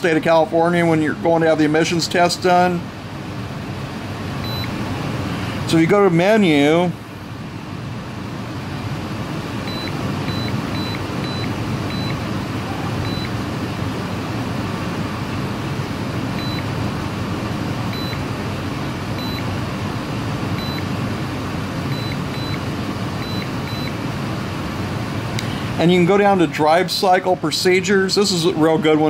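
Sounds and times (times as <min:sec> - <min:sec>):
high-pitched keypad beeps: 0:09.7 - 0:13.4, 0:17.9 - 0:18.2, 0:19.2 - 0:19.5, 0:20.6 - 0:20.9, 0:21.9 - 0:22.6, 0:23.2 - 0:24.0.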